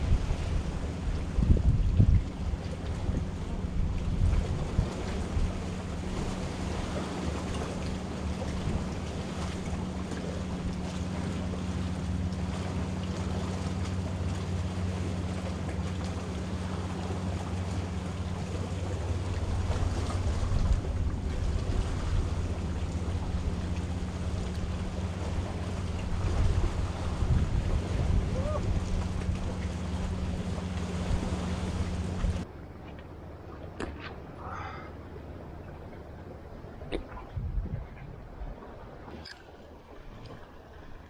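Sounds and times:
wind buffeting microphone: 0:00.0 - 0:32.4, 0:35.8 - 0:39.2
steady low hum: 0:00.0 - 0:41.0
waves washing on rocks: 0:02.9 - 0:32.4.

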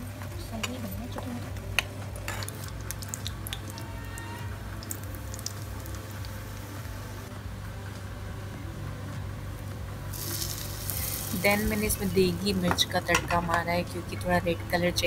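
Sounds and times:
hot oil crackling: 0:01.7 - 0:07.3, 0:10.1 - 0:14.3.

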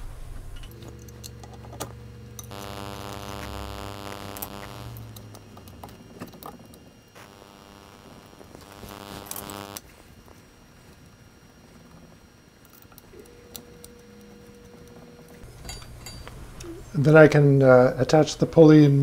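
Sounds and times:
droning hum: 0:00.0 - 0:19.0
light metal clinks and knocks: 0:15.4 - 0:16.4.

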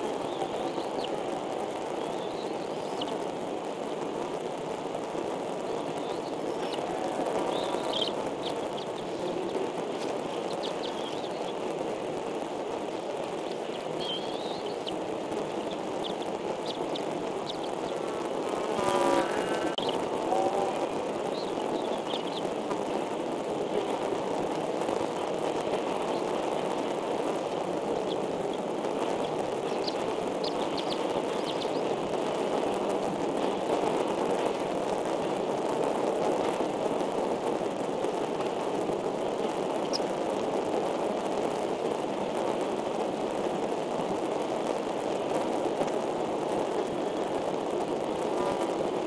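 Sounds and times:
faint high chirps: 0:00.0 - 0:03.3, 0:05.6 - 0:11.6, 0:13.3 - 0:22.5, 0:27.5 - 0:32.0
steady rushing noise: 0:00.0 - 0:49.0.

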